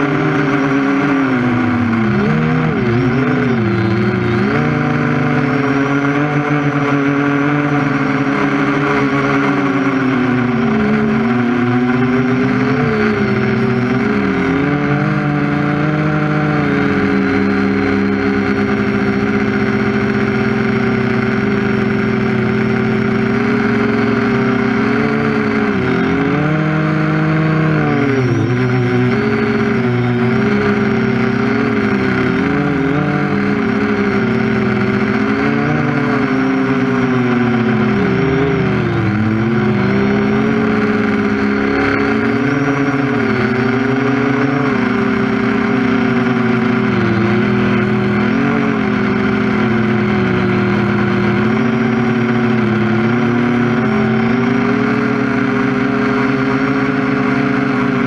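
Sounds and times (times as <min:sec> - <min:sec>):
quadcopter propellers whirring: 0:00.0 - 0:58.0.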